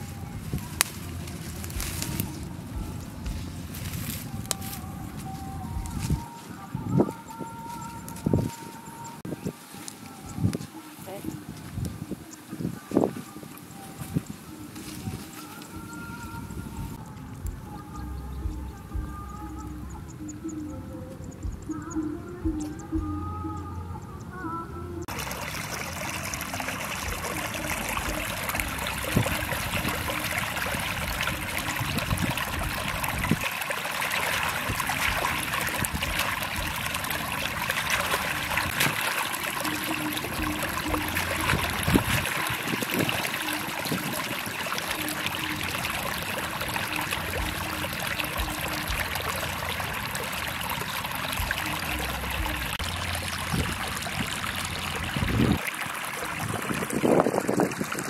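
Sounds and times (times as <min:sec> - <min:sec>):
water trickling in a channel: 0:00.0 - 0:20.4, 0:25.0 - 0:58.0.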